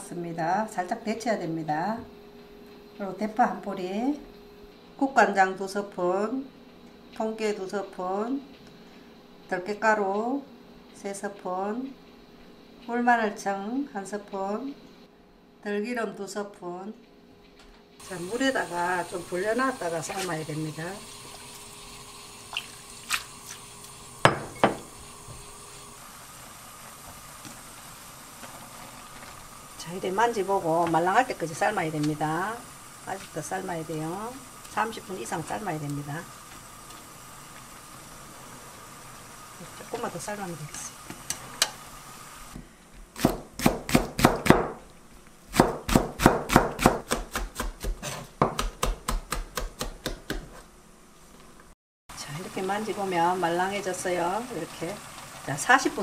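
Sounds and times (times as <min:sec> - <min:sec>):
knife chopping on cutting board: 0:43.2 - 0:44.8, 0:45.5 - 0:50.6.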